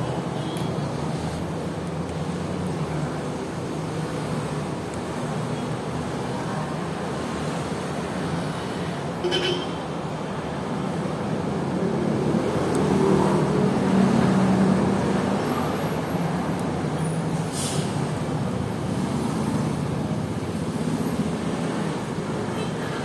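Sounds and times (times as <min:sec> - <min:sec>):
road traffic: 0:00.0 - 0:23.0.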